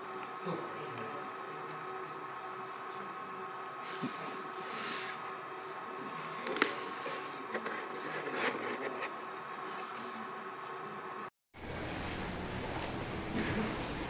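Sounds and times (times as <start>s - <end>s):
steady background hum: 0.0s - 14.0s
paper card rustling: 7.4s - 10.2s.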